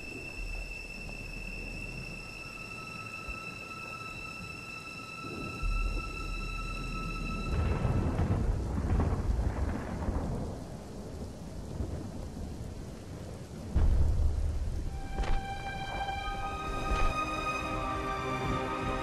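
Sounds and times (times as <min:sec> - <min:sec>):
steady rain: 0:00.0 - 0:19.0
thunder rumbling: 0:05.2 - 0:19.0
music notes: 0:14.8 - 0:19.0.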